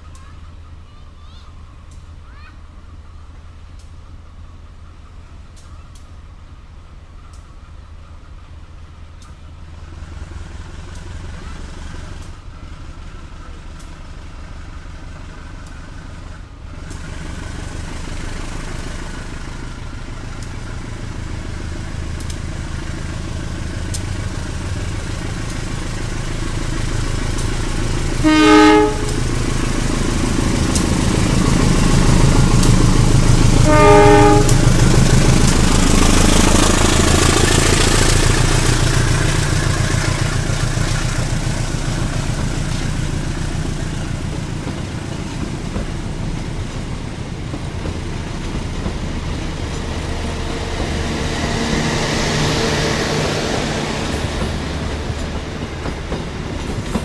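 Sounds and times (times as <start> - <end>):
diesel locomotive rumble: 0.0 - 57.0
train wheels rushing on rails: 0.0 - 57.0
train horn blasts: 28.2 - 29.2, 33.5 - 34.8.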